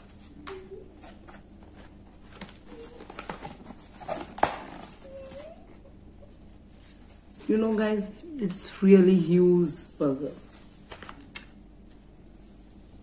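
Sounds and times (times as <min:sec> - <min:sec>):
cardboard box crinkling: 0:01.7 - 0:05.4
cardboard box snapping: 0:02.3 - 0:04.9.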